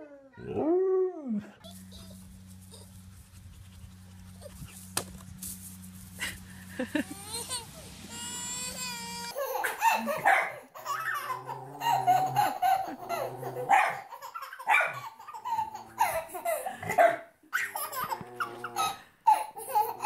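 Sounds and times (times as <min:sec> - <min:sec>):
baby laughing: 0:06.8 - 0:20.0
small dog barking: 0:09.6 - 0:10.6, 0:13.6 - 0:15.1, 0:16.9 - 0:17.7.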